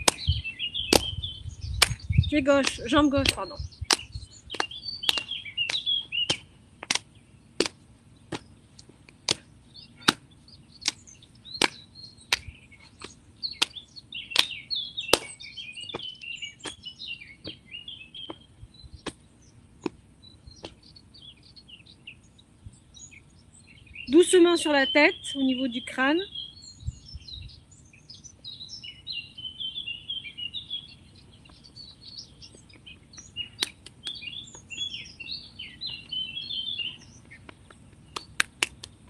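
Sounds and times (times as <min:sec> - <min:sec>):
hands slapping a leg: 0:00.0 - 0:00.3, 0:00.9 - 0:01.1, 0:01.8 - 0:02.0, 0:02.6 - 0:10.2, 0:11.6 - 0:13.8, 0:14.4 - 0:16.8, 0:20.6 - 0:20.8, 0:37.5 - 0:38.9
birds chirping: 0:00.0 - 0:39.0.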